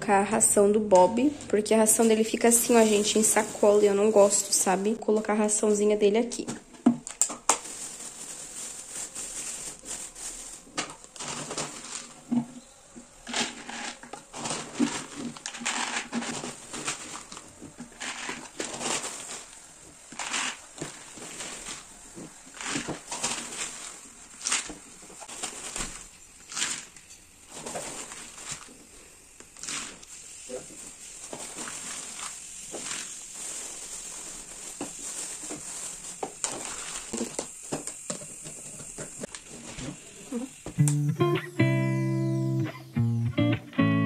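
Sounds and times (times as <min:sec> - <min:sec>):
plastic bag crinkling: 0:01.2 - 0:38.1
dry kibble rattling and clattering: 0:07.1 - 0:12.2, 0:13.1 - 0:28.9.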